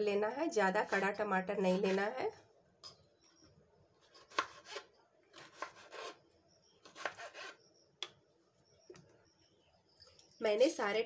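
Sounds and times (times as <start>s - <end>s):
knife cutting tomatoes: 4.2s - 6.2s, 6.8s - 7.6s.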